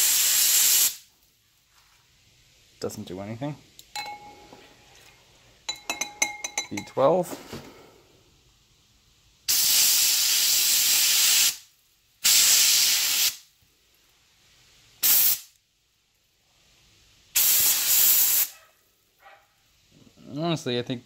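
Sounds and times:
compressed air blasts: 0.0 - 1.1, 9.5 - 13.5, 15.0 - 15.6, 17.3 - 18.6.

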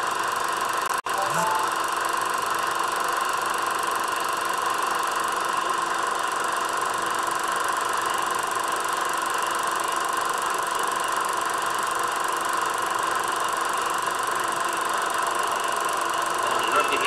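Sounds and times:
film projector whirring: 0.0 - 17.0
steady high-pitched tone: 1.1 - 2.0.

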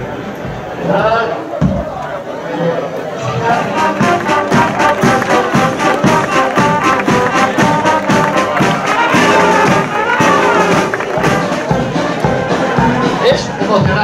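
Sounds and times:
brass band playing: 3.2 - 14.0
bass drum beat: 3.5 - 14.0.

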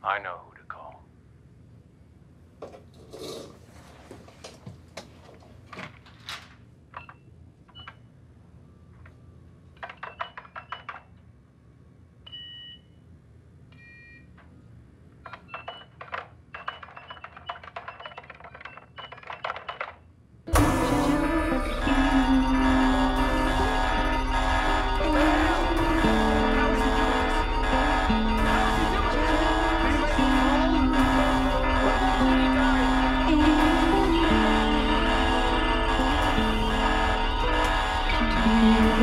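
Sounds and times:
low steady hum: 20.5 - 39.0.

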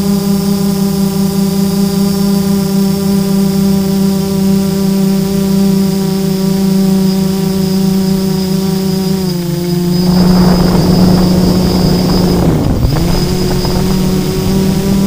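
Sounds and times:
drone motors buzzing whine: 0.0 - 15.0
rushing wind noise: 8.8 - 15.0.

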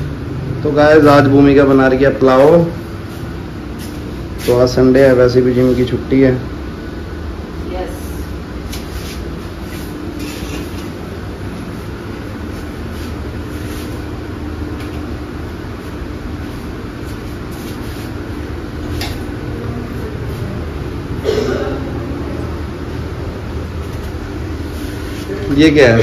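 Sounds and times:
exhaust fan humming: 0.0 - 26.0.

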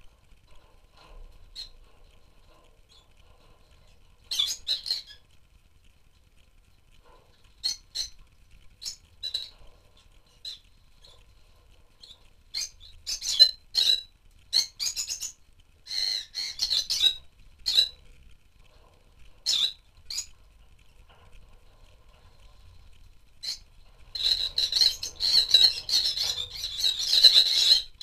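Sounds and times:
lovebirds chirping: 1.4 - 5.4, 7.5 - 8.2, 8.8 - 18.0, 19.4 - 20.4, 23.4 - 28.0.

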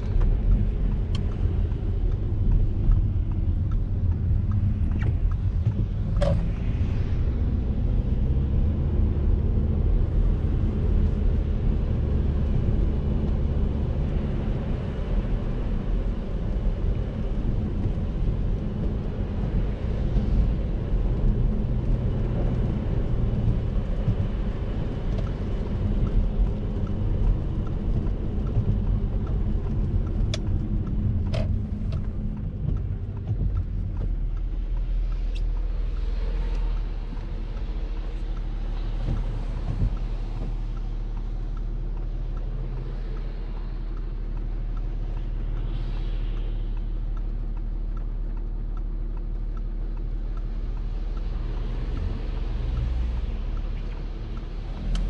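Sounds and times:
car engine and tyres rumbling: 0.0 - 55.0
hiss of wet tarmac: 45.4 - 47.4.

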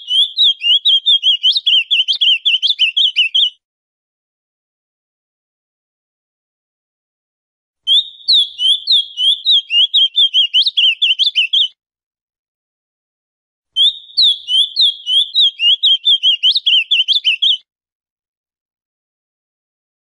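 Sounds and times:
bird singing warbled notes: 0.1 - 3.5, 7.9 - 11.7, 13.8 - 17.6.

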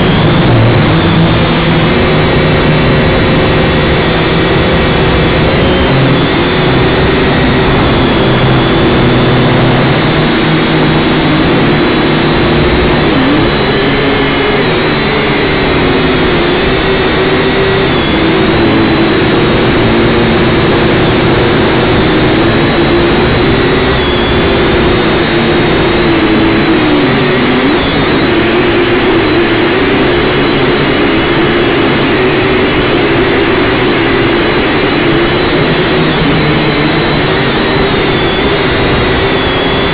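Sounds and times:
drone propellers buzzing: 0.0 - 39.9.

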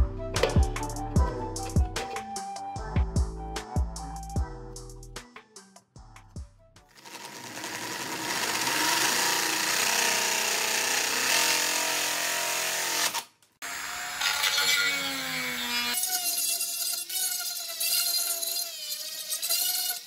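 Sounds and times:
drill cutting plastic: 6.9 - 20.0
rotary tool grinding: 6.9 - 20.0.

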